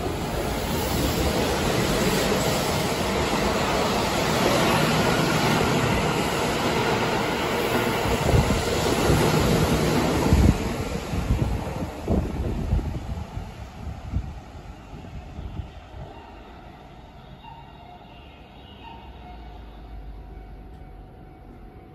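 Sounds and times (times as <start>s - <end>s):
train wheels rumbling on rails: 0.0s - 16.4s.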